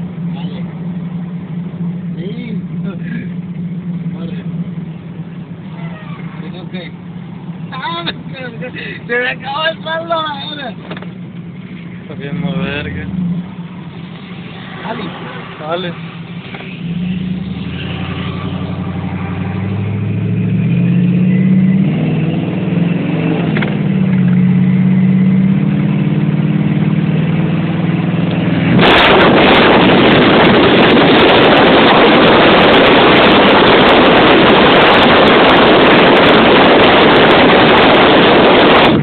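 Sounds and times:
vehicle engine revving: 10.8 - 39.0
wind battering microphone: 28.6 - 39.0.

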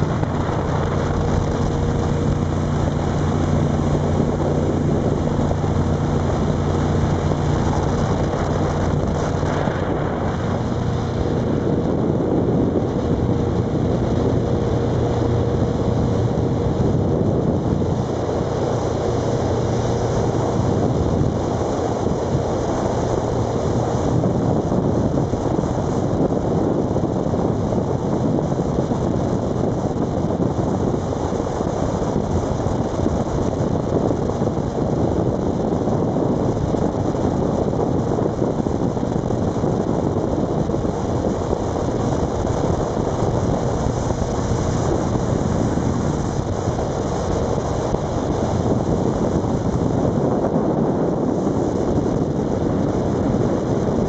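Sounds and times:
boat engine running: 0.0 - 54.0
water rushing past hull: 0.0 - 54.0
wind on microphone: 0.0 - 54.0.

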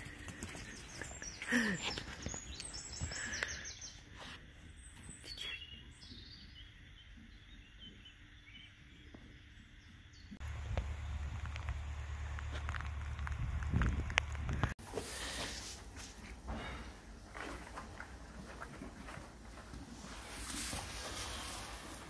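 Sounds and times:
small birds chirping: 0.0 - 11.9
steady low rumble: 10.4 - 14.8.

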